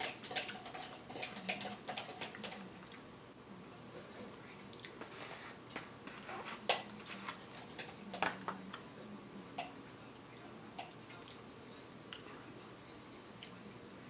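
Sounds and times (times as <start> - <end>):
mouth sounds of eating: 3.9 - 5.5, 6.2 - 12.6.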